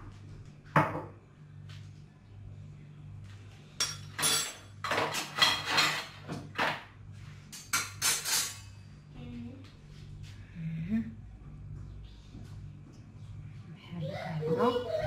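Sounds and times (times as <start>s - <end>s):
steady low hum: 0.0s - 4.9s, 6.9s - 15.0s
utensils scraping against dishes: 3.8s - 6.8s, 7.5s - 8.7s.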